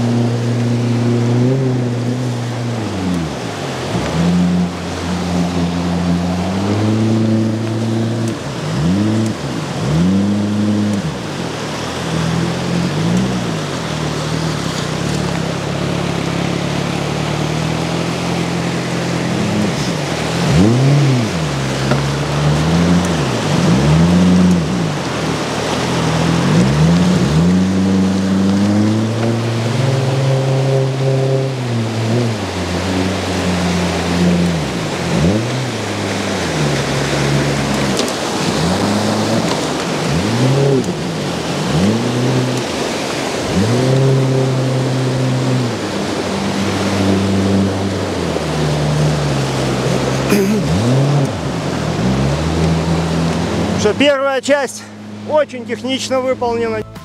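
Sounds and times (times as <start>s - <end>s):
outboard motor revving: 0.0s - 57.0s
white water rushing: 0.0s - 57.0s.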